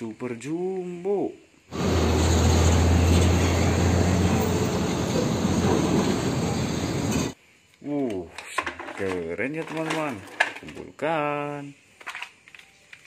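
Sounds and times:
road and tyre noise: 0:01.7 - 0:07.4
truck diesel engine hum: 0:01.7 - 0:07.4.

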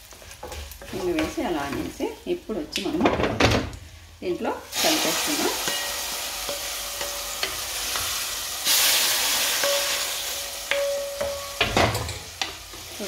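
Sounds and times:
hot oil sizzling: 0:00.0 - 0:03.0, 0:03.7 - 0:13.0.

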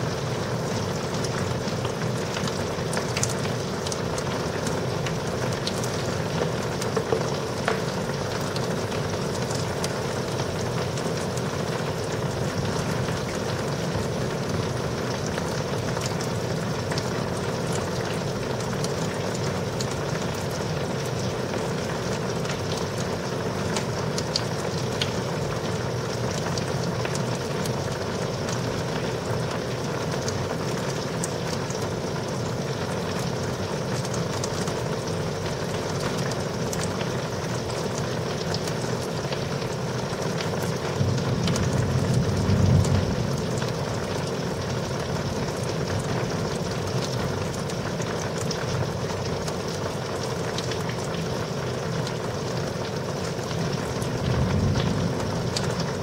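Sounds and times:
heavy rain falling: 0:00.0 - 0:56.0
raindrops ticking: 0:00.1 - 0:56.0
thunder rumbling: 0:41.0 - 0:44.3, 0:54.2 - 0:56.0.

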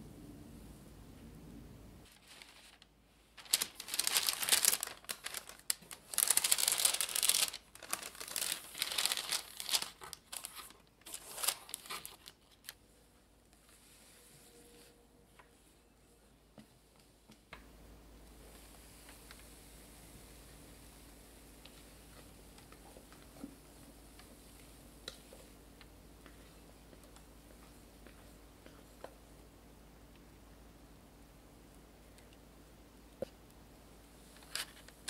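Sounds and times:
baking parchment crinkling: 0:02.1 - 0:12.8, 0:34.4 - 0:35.0.

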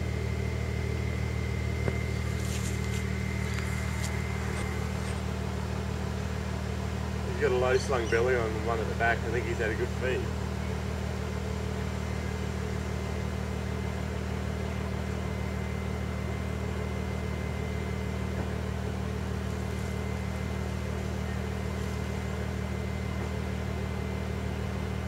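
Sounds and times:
engine idling: 0:00.0 - 0:25.0.

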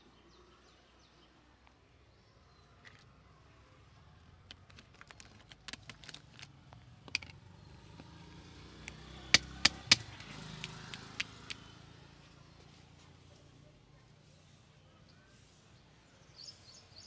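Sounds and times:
road traffic rumble: 0:03.0 - 0:16.3
small sharp clicks: 0:08.8 - 0:11.7
loud sharp snaps: 0:08.9 - 0:11.7.

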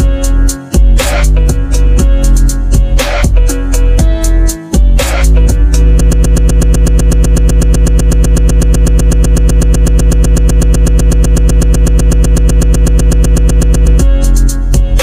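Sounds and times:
heavy deep bass: 0:00.0 - 0:15.0
stuttering synthesizer chord: 0:05.0 - 0:15.0.

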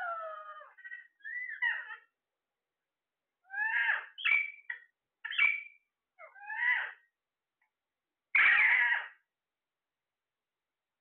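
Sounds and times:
parakeets squawking: 0:00.1 - 0:02.1, 0:03.5 - 0:07.0, 0:08.4 - 0:09.2
parakeet harsh screech: 0:03.5 - 0:04.6, 0:06.4 - 0:07.0, 0:08.4 - 0:09.2.

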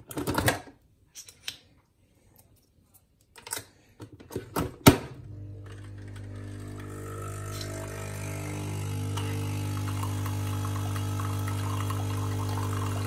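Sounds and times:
coffee machine pump humming: 0:05.4 - 0:13.0.

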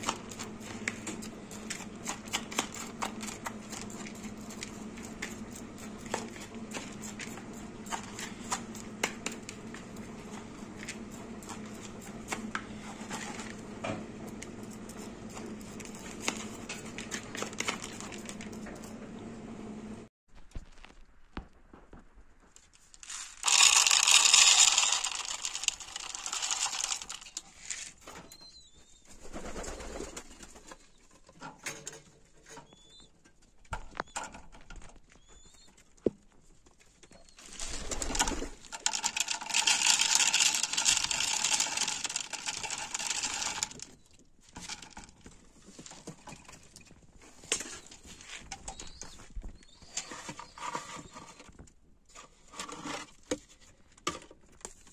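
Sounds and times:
handling noise: 0:20.3 - 0:28.7.

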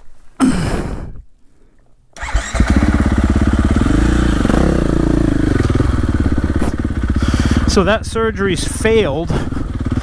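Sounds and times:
motorcycle engine revving: 0:02.2 - 0:10.0.

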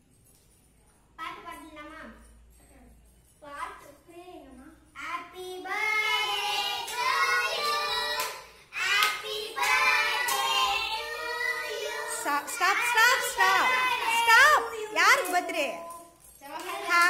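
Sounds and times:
children singing: 0:05.4 - 0:16.9
hand-clapping: 0:06.7 - 0:11.9, 0:13.8 - 0:17.0.

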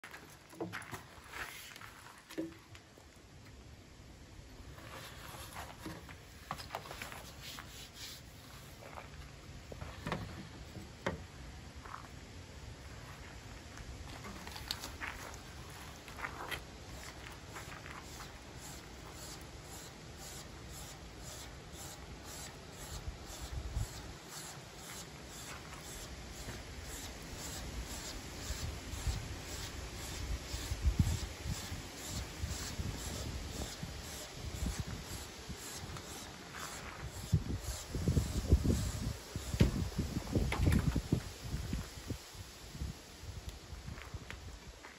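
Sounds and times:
knife stropped on leather belt: 0:01.3 - 0:02.0, 0:06.6 - 0:08.8.

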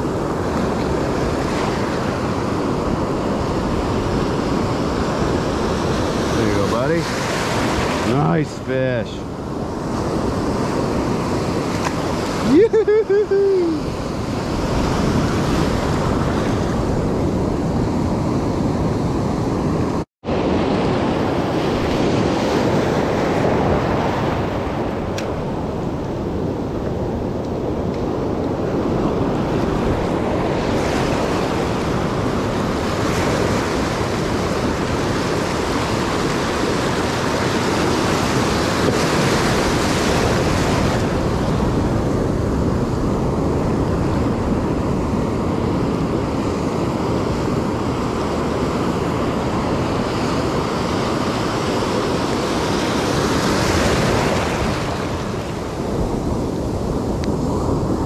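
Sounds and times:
ocean surf washing in: 0:00.0 - 0:58.0
wind rumbling on microphone: 0:00.0 - 0:58.0.

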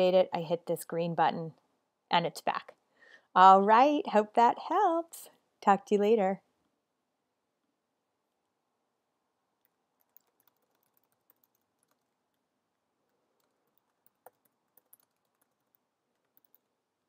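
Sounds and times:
typing on computer keyboard: 0:09.6 - 0:12.4, 0:13.0 - 0:16.8.

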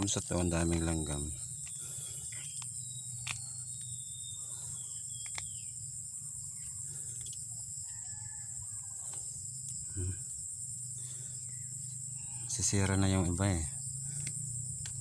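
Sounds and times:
crickets and insects chorus: 0:00.0 - 0:15.0
distant rooster crowing: 0:07.7 - 0:09.4.

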